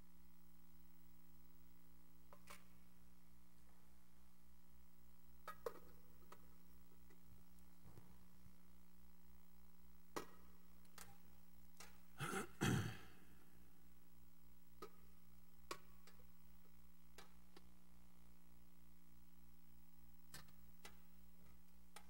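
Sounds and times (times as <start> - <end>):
small sharp clicks and knocks: 2.3 - 2.8, 5.4 - 7.2, 10.1 - 11.2, 11.8 - 12.0, 14.8 - 15.0, 15.6 - 16.3, 17.1 - 17.7, 20.3 - 22.0
person clearing throat: 12.2 - 13.2.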